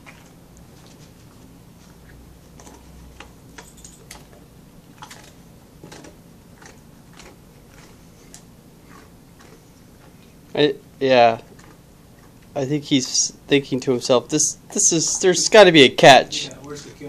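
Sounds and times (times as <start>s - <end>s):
dog crunching biscuits: 0.0s - 10.6s, 11.2s - 13.3s.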